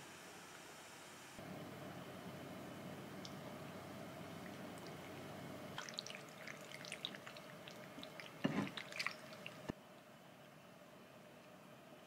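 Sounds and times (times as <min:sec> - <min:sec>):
wet squelches of mixing noodles: 0:03.2 - 0:09.7
sauce pouring: 0:04.1 - 0:09.7.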